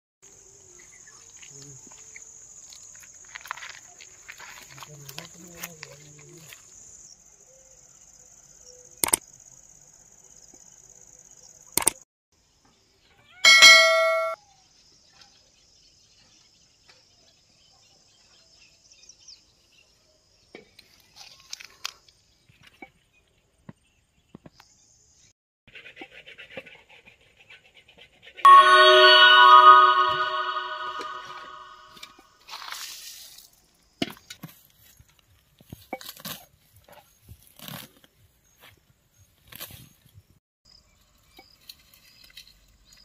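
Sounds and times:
sharp clicks: 0:11.8 - 0:12.0
brief ringing ding: 0:13.5 - 0:14.4, 0:28.5 - 0:32.0.

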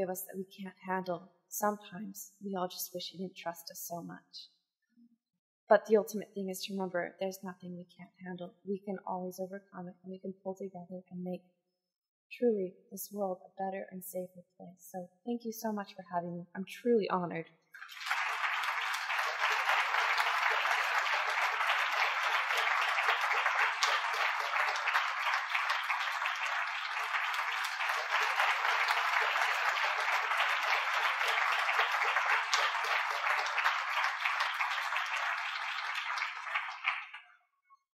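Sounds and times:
audience applauding: 0:17.8 - 0:37.3.

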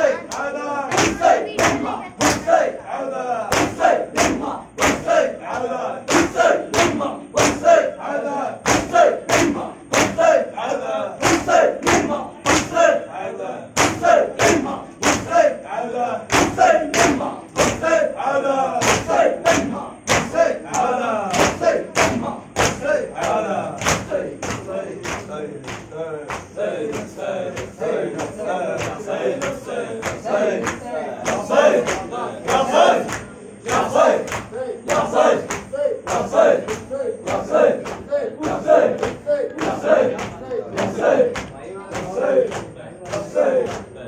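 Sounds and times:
men chanting in unison: 0:00.0 - 0:44.0
hands beating chests: 0:03.5 - 0:05.2, 0:08.6 - 0:10.3, 0:13.8 - 0:15.4, 0:18.8 - 0:43.8.

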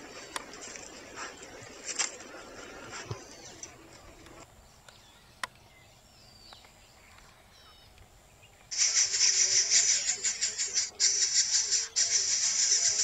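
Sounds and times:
faint high bird chirps: 0:04.6 - 0:13.0.

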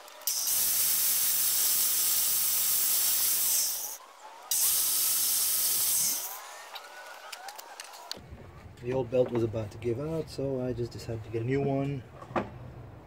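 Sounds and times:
angle grinder grinding metal: 0:00.0 - 0:07.3.

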